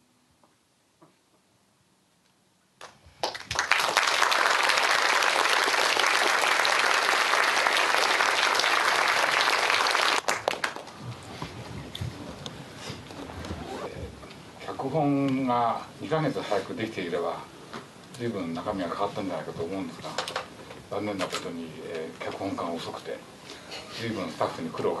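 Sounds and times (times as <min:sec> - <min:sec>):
crowd applauding: 0:03.2 - 0:10.9.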